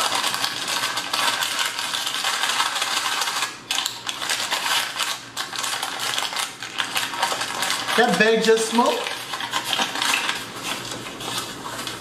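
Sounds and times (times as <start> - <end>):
paper and plastic bag crinkling: 0.0 - 12.0.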